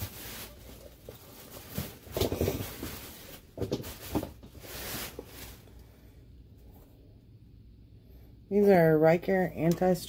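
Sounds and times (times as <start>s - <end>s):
rustling: 0.0s - 6.0s.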